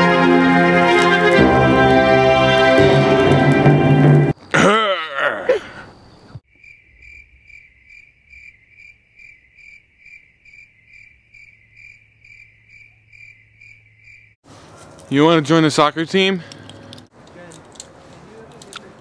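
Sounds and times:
cricket chirping sound effect: 0:05.8 - 0:14.4.

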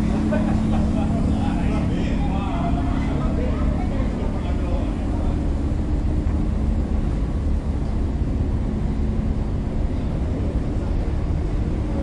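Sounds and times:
electric locomotive humming: 0:00.0 - 0:12.0.

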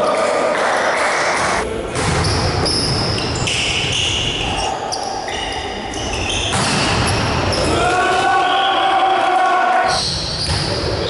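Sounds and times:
volleyball strikes: 0:01.9 - 0:03.9, 0:06.3 - 0:07.7.

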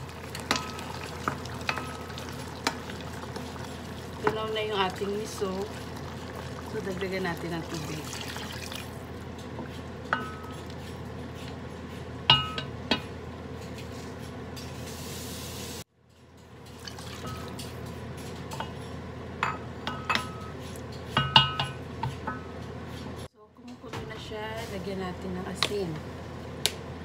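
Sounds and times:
water pouring into pot: 0:00.0 - 0:09.1, 0:16.8 - 0:17.5.

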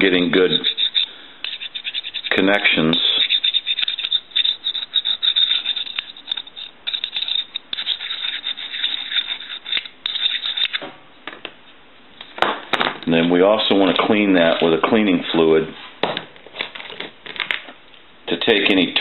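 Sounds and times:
metal contacts being scraped: 0:00.3 - 0:02.4, 0:03.0 - 0:10.8.

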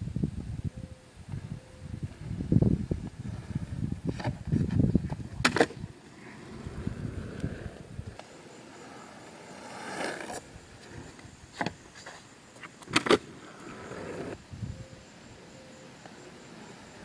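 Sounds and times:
longboard wheels rolling on asphalt: 0:01.3 - 0:14.5
board clattering on road: 0:04.1 - 0:05.8.

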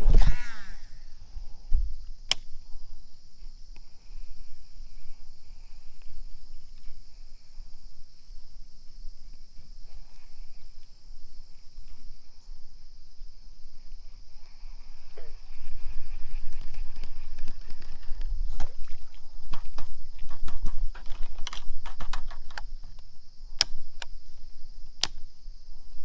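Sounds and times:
insects chirring: 0:00.0 - 0:26.0
sharp click: 0:02.3 - 0:02.5, 0:25.0 - 0:25.2.

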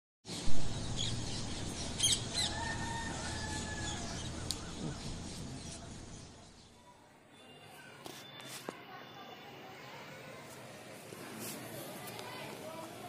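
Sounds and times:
birds chirping and calling: 0:00.3 - 0:06.8.

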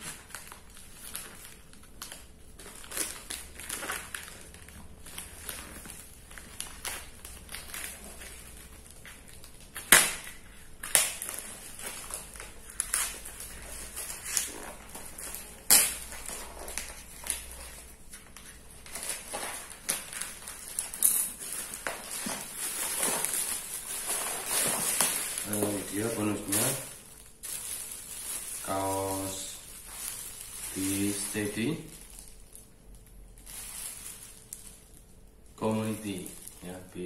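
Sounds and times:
plastic mailer rustling: 0:00.0 - 0:32.7, 0:33.4 - 0:35.0
tape snapping and cracking: 0:09.0 - 0:13.3, 0:14.0 - 0:23.5.

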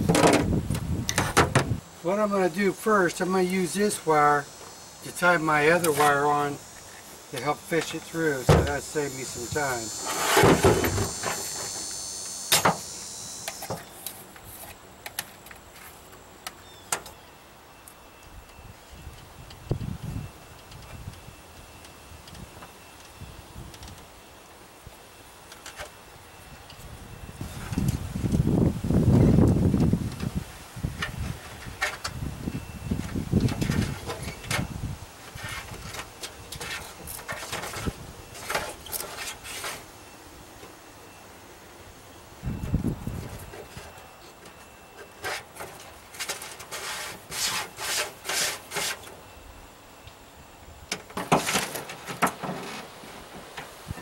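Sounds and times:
hand tool scraping and rattling: 0:07.4 - 0:12.9, 0:33.4 - 0:39.9, 0:43.4 - 0:49.2, 0:51.1 - 0:53.8.

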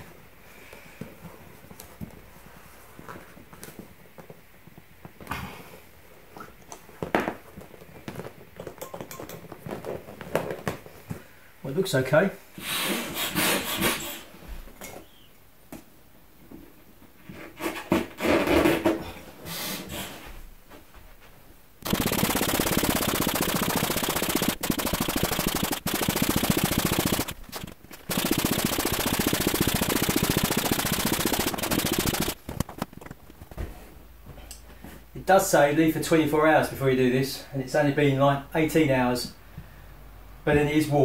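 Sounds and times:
electric air pump rattling: 0:21.8 - 0:33.6.

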